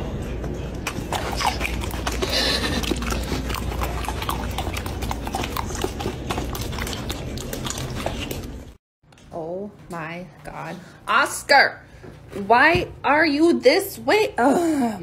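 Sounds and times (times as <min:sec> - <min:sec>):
puppy licking and chewing: 0:00.9 - 0:08.8.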